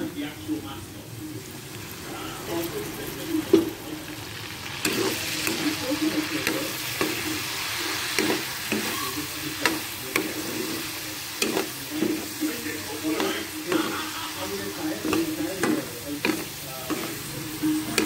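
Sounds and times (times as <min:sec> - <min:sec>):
food sizzling in a wok: 0:00.0 - 0:18.0
metal spoon scraping a pan: 0:04.8 - 0:18.0.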